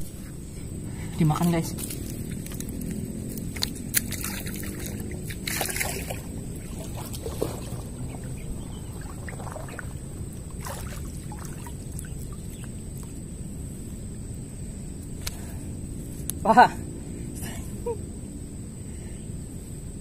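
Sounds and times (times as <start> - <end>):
low rumble: 0.0 - 20.0
water sloshing and splashing: 1.8 - 13.2.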